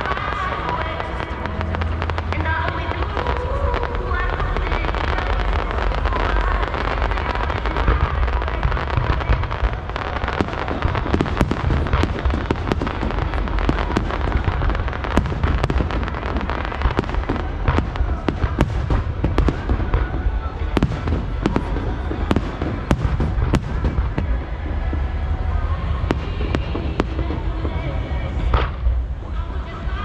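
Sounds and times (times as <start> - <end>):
fireworks bursts rumbling: 0.0 - 30.0
fireworks crackling: 0.0 - 30.0.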